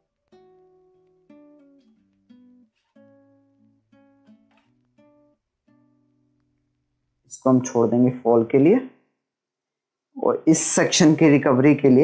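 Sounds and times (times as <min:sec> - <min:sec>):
plucked guitar music: 0:00.0 - 0:07.3.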